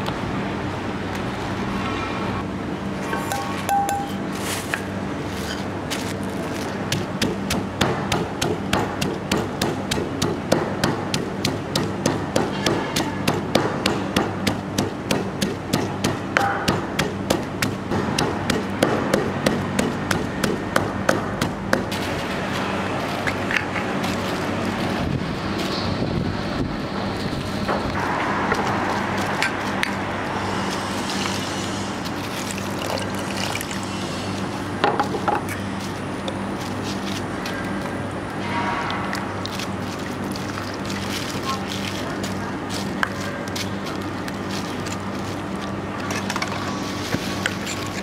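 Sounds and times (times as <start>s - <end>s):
pestle pounding in mortar: 6.9s - 22.3s.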